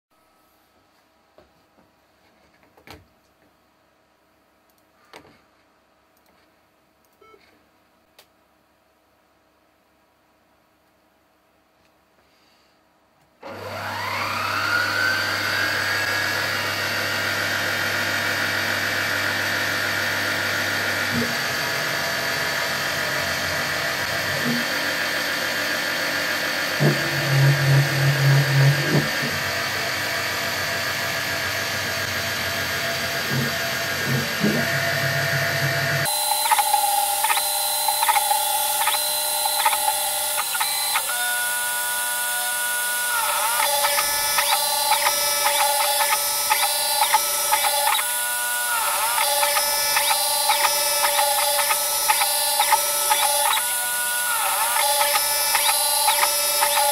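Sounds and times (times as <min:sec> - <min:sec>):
milling machine spindle running: 0:13.6 - 0:56.9
axis motors humming: 0:31.3 - 0:56.9.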